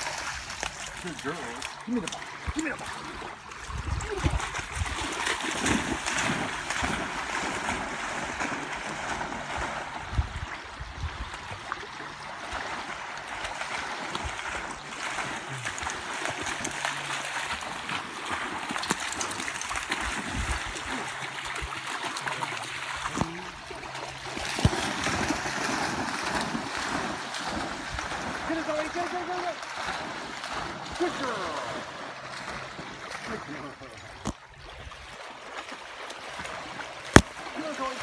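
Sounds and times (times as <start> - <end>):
dogs splashing in water: 0.0 - 38.0
small waves lapping at shore: 0.0 - 38.0.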